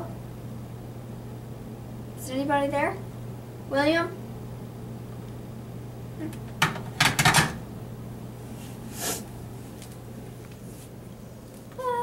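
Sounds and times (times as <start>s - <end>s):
low steady hum: 0.0s - 12.0s
rattle of clicks and knocks: 6.6s - 7.6s.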